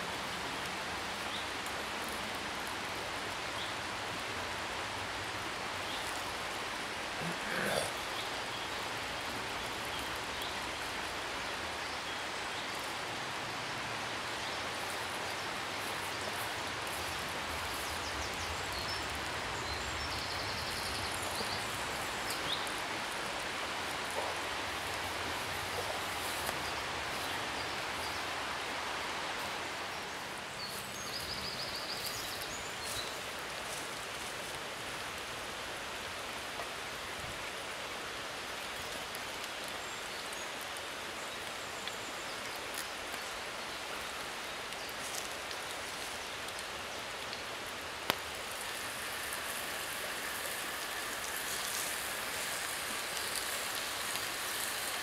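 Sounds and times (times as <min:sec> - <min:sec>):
bacon sizzling in a pan: 0:48.1 - 0:55.0.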